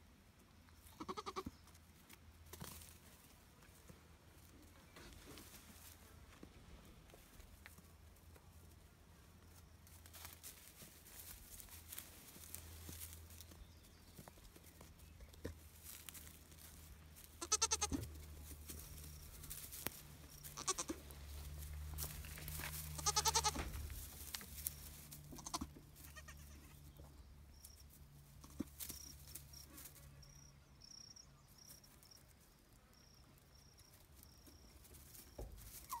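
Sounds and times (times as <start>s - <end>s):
goats bleating: 1.0s - 1.5s, 17.4s - 18.0s, 20.6s - 21.0s, 22.9s - 23.7s, 25.3s - 26.8s
hooves shuffling in hay: 2.0s - 26.9s, 34.1s - 36.0s.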